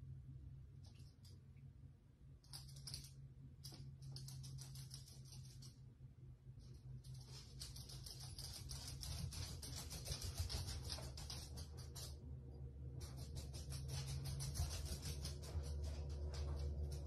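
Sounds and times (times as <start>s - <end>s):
dog claws on hard floor: 2.5s - 5.8s, 7.0s - 12.2s, 13.0s - 17.0s.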